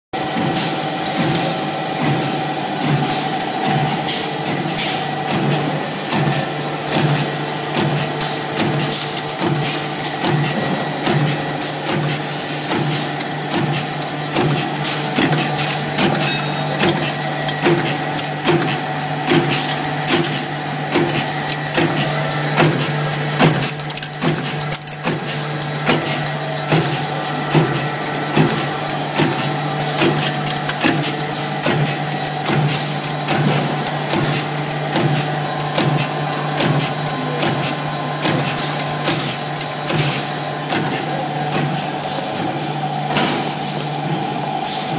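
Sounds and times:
machine humming: 0.2s - 44.9s.

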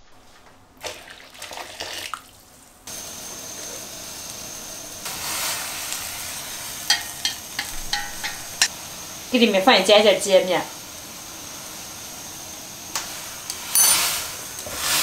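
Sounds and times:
water splashing into a metal wok: 0.8s - 2.6s
steady hiss with high whine: 2.8s - 15.0s.

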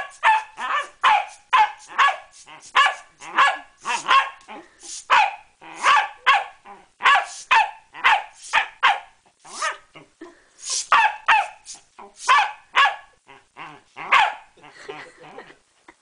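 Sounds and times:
dog barking in high barks: 0.0s - 4.5s, 5.1s - 9.8s, 10.8s - 13.1s, 14.1s - 14.5s.

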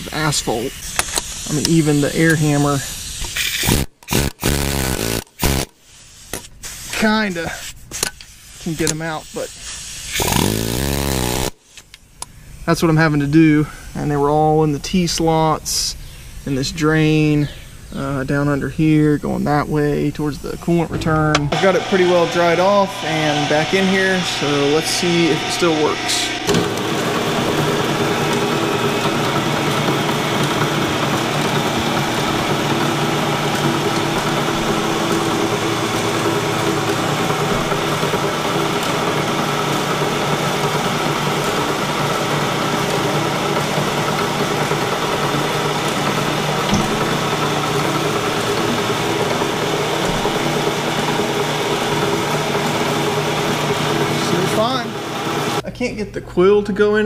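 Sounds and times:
milling machine humming: 21.0s - 55.6s.

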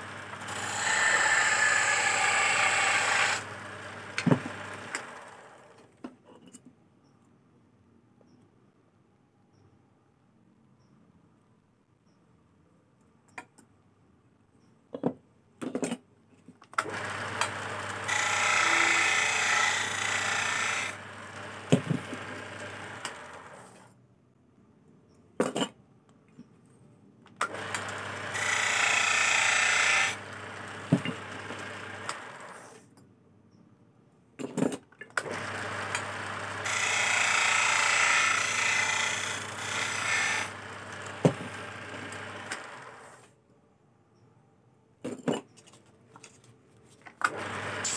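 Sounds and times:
chisel scraping spinning wood: 0.0s - 5.4s, 16.9s - 23.8s, 27.6s - 32.8s, 35.3s - 43.0s
lathe motor humming: 0.0s - 5.5s, 16.9s - 23.5s, 27.5s - 32.6s, 35.3s - 43.0s.

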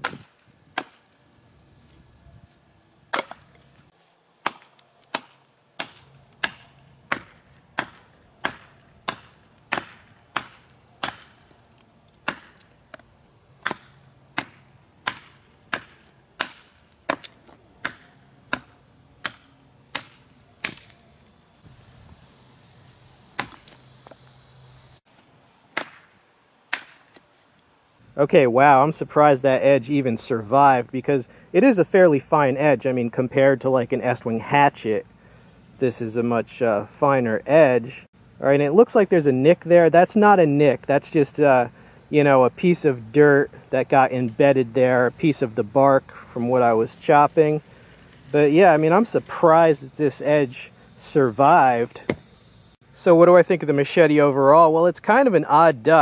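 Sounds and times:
machete chopping dry branch: 0.0s - 1.1s, 3.1s - 3.7s, 4.4s - 11.5s, 12.2s - 13.0s, 13.6s - 21.0s, 23.4s - 23.8s, 25.7s - 27.3s, 52.0s - 52.3s
insects buzzing: 0.0s - 56.0s.

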